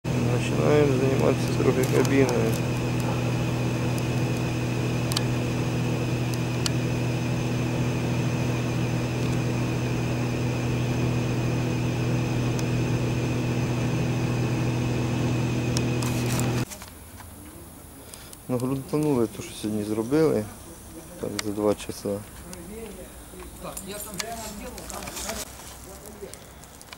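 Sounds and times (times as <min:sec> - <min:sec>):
engine humming steadily: 0:00.0 - 0:16.7.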